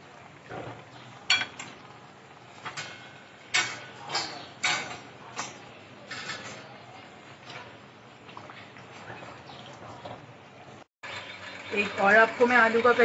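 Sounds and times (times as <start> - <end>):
deep-frying oil sizzling: 0.0 - 13.0
metal utensils clinking: 2.6 - 7.7.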